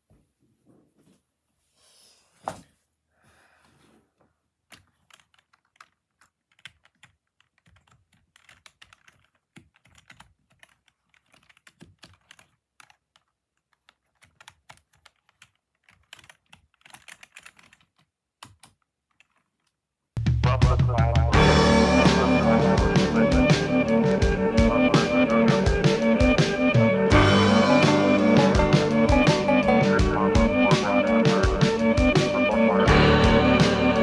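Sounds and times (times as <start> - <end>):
keyboard typing: 4.7 - 19.8, 22.0 - 34.0
loud music: 20.2 - 34.0.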